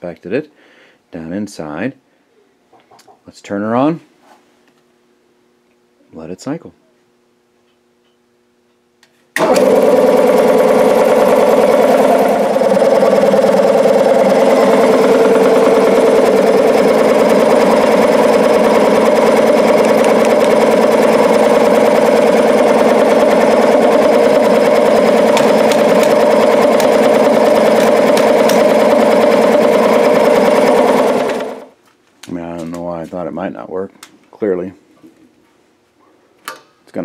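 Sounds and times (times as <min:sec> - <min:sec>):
air compressor running: 0:09.4 - 0:31.8.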